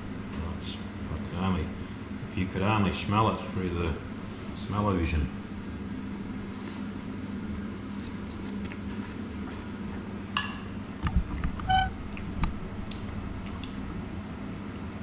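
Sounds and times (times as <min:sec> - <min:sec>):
fork clinking on ceramic bowl: 0:10.4 - 0:10.8.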